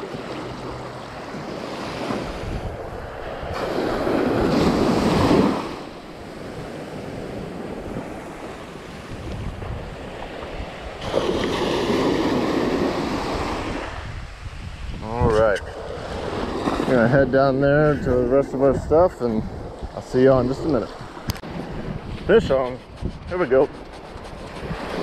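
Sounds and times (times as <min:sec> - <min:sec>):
small waves breaking on sand: 0:00.0 - 0:14.9, 0:15.8 - 0:18.0
wind on microphone: 0:00.0 - 0:25.0.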